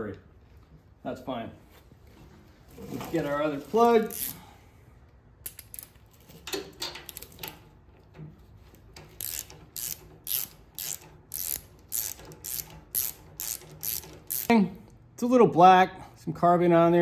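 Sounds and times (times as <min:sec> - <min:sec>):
socket ratchet clicking: 0:09.1 - 0:14.5.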